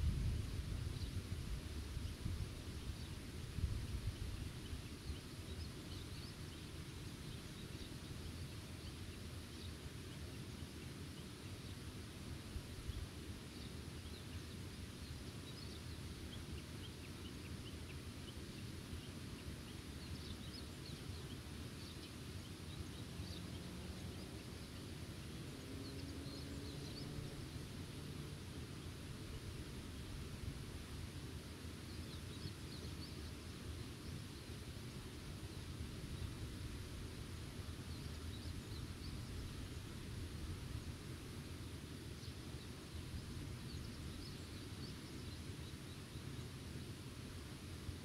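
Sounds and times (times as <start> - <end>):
low wind noise: 0.0 - 5.4.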